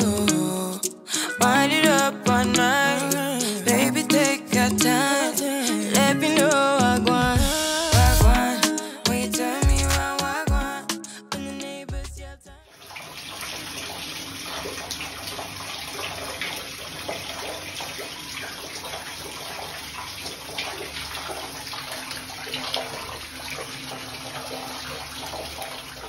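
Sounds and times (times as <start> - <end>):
water pouring and splashing: 12.7 - 26.0.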